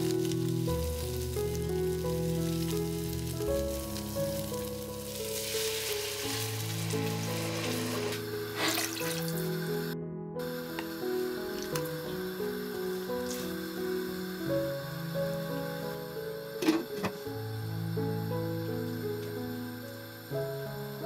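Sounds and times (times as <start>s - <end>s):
soft background music: 0.0s - 21.0s
vegetables frying in a pot: 0.0s - 21.0s
water poured with rushing hiss: 0.0s - 21.0s.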